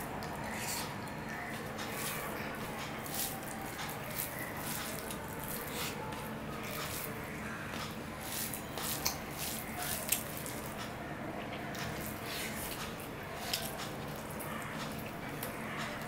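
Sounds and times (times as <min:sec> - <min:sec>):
chewing: 0:00.2 - 0:07.2.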